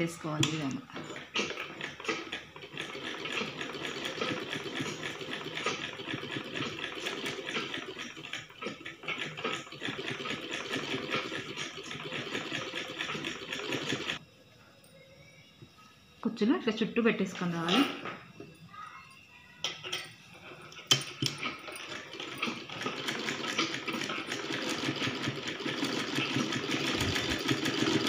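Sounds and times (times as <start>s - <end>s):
sewing machine stitching: 0.0s - 14.2s, 20.8s - 28.0s.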